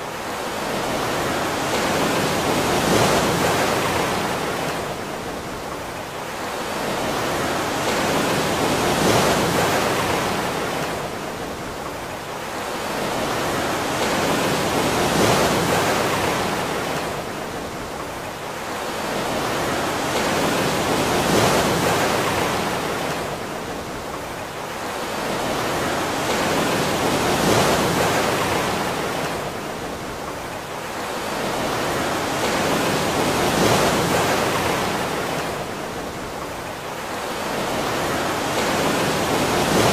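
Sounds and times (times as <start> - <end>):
surf washing in and out: 0.0 - 39.9.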